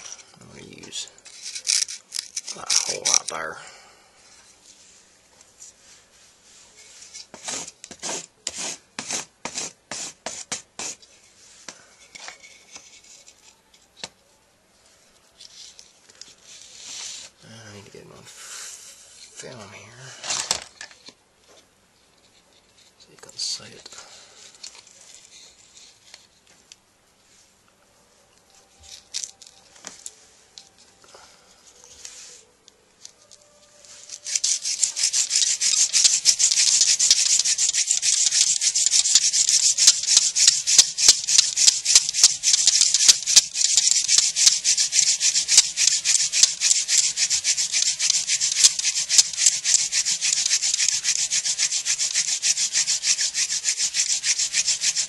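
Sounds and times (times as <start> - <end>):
wooden spindle grinding rasp: 34.0 - 55.0.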